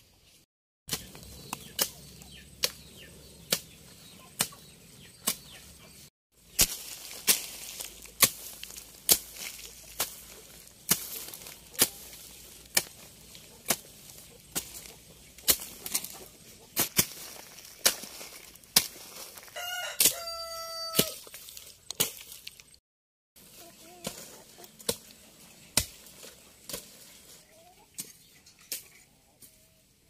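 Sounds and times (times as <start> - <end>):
rooster crowing: 19.5 - 21.2.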